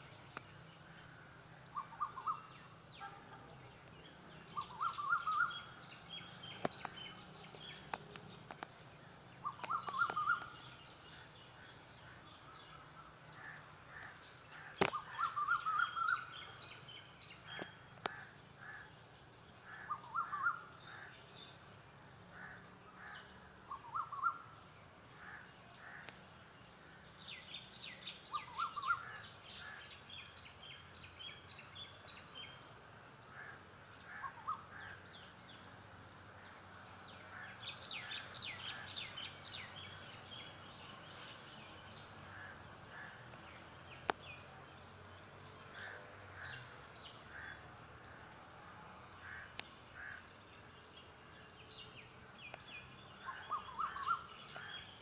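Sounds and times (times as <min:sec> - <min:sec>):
birds chirping rapidly: 0:00.0 - 0:55.0
faint steady background noise: 0:00.0 - 0:55.0
short lower bird calls: 0:01.0 - 0:03.5, 0:04.5 - 0:07.0, 0:09.4 - 0:11.3, 0:12.7 - 0:16.6, 0:52.5 - 0:55.0.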